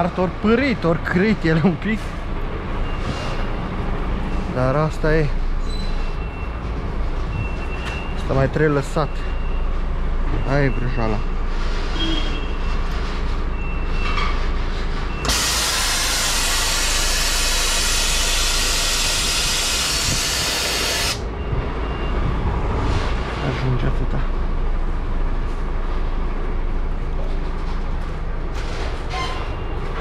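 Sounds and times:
compressed air hissing: 15.2 - 21.2
truck diesel engine idling: 15.3 - 21.2.

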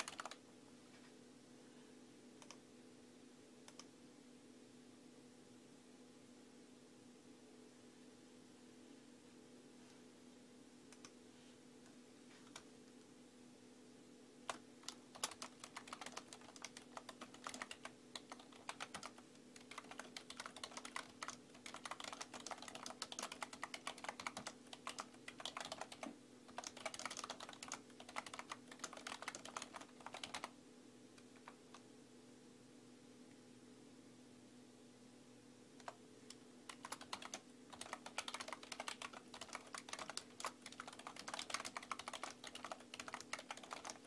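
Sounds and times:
typing on keyboard: 0.0 - 0.4, 14.4 - 30.6, 31.2 - 31.8, 35.8 - 44.0.

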